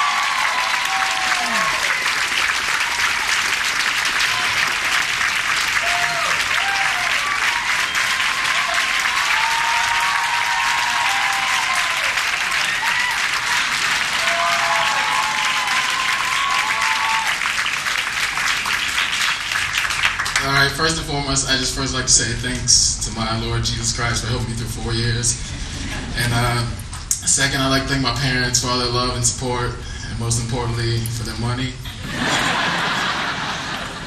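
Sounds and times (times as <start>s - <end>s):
whoops and cheers: 0.0s - 3.4s, 5.7s - 17.6s
audience applauding: 0.0s - 21.6s, 32.1s - 34.0s.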